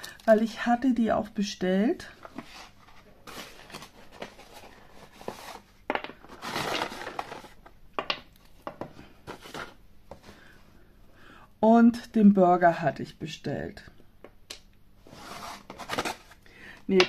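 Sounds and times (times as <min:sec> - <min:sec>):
paper packaging rustling: 0:02.1 - 0:07.7, 0:09.2 - 0:09.8, 0:15.1 - 0:16.4.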